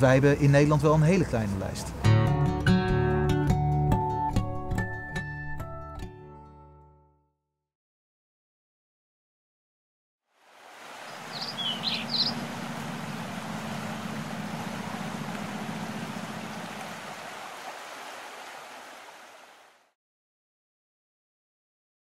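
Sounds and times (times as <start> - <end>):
stream water rushing over rocks: 10.4 - 19.8
bird chirps: 11.1 - 16.5.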